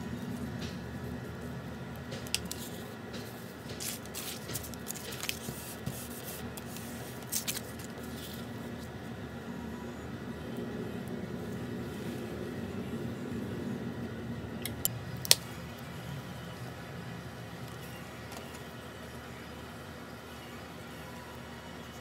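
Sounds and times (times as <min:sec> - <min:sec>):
steady background hum: 0:00.0 - 0:22.0
paper rustles and taps: 0:02.1 - 0:07.9.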